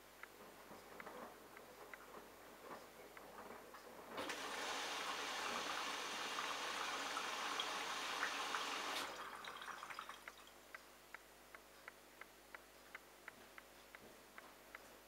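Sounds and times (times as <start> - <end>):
water rushing into washing machine: 4.2 - 10.2
faint regular ticks: 10.2 - 15.0.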